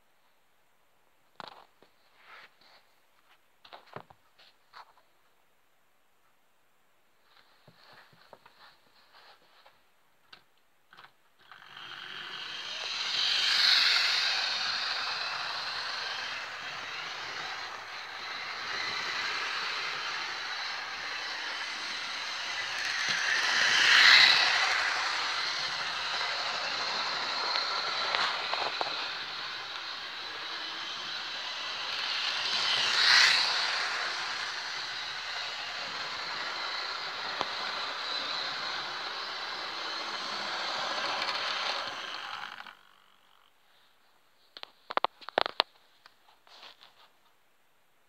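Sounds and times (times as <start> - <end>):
model train wheels on rails: 10.3 - 43.5, 44.6 - 47.0
model train motor whirring: 11.0 - 43.5.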